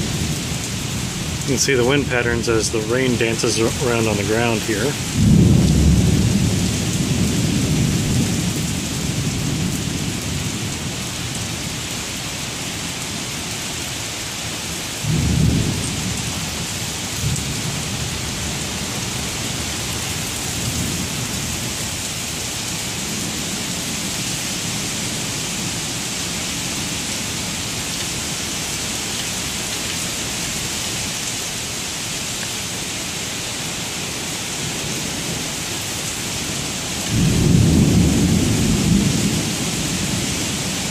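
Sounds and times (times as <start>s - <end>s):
thunder rumbling: 0.0s - 10.9s, 37.1s - 40.9s
heavy rain on pavement: 0.0s - 40.9s.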